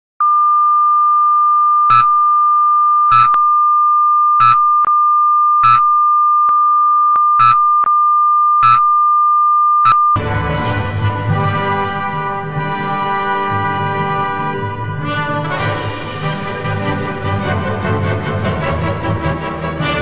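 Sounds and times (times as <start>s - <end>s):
high-pitched test tone beep: 0.2s - 10.2s
station ident theme music: 10.2s - 20.0s.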